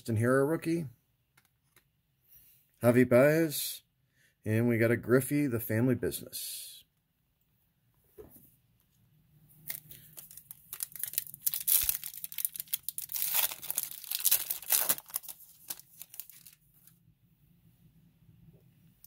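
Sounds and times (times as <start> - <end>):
foil wrapper tearing and crinkling: 9.6 - 16.9.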